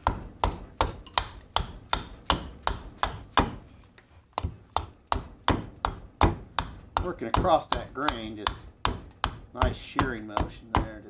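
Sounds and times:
axe chopping wood: 0.0s - 3.6s, 4.4s - 11.0s.

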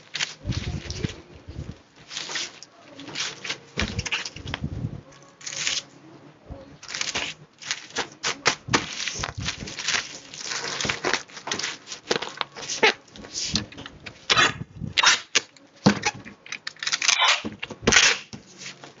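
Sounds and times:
plastic bag crinkling: 0.0s - 4.6s, 6.8s - 15.5s.

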